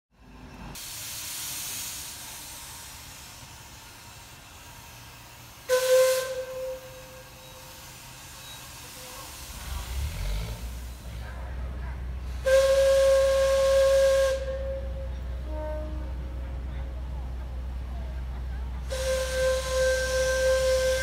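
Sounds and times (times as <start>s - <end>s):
steam locomotive venting steam: 0.6s - 21.0s
steam whistle: 5.7s - 7.8s, 12.4s - 16.1s, 18.9s - 21.0s.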